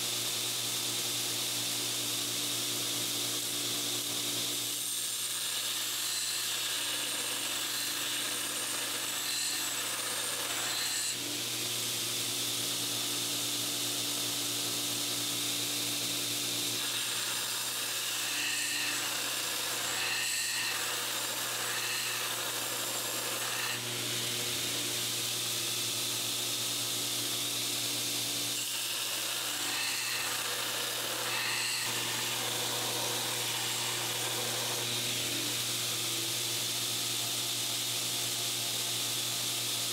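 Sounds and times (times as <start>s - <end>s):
belt grinder hum: 2.4s - 39.8s
steel grinding on abrasive belt: 16.5s - 27.0s, 28.4s - 36.7s.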